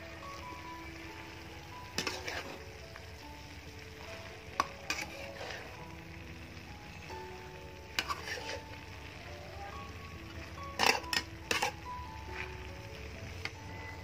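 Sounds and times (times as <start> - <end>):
food sizzling in a wok: 0.0 - 14.0
metal spatula scraping a pan: 1.8 - 2.7, 4.1 - 5.8, 7.9 - 8.8, 10.7 - 12.5.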